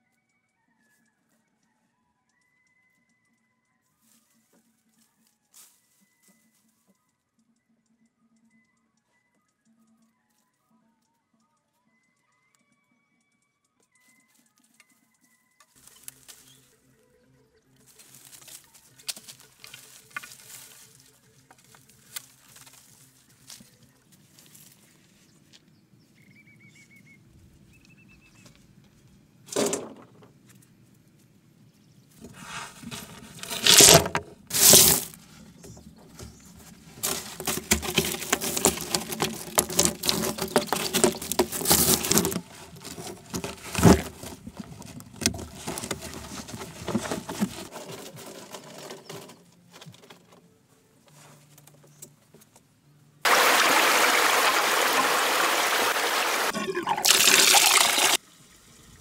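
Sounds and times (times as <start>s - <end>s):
stones clattering and scraping: 32.2s - 50.3s
water pouring from pipe: 37.0s - 43.6s, 53.3s - 59.0s.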